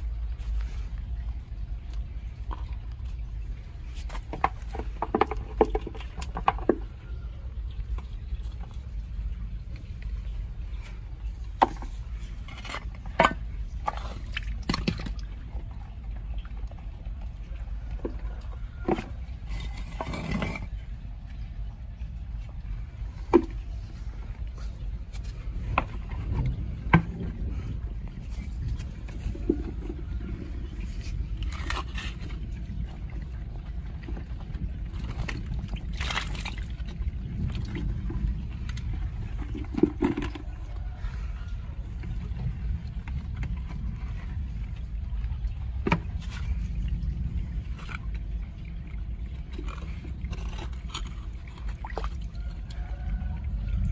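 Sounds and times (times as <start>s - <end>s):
steady low rumble: 0.0s - 53.9s.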